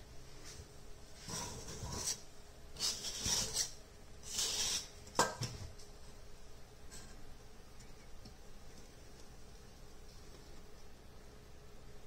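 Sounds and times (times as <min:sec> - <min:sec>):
kitchenware rasping scrapes: 0:01.2 - 0:05.0.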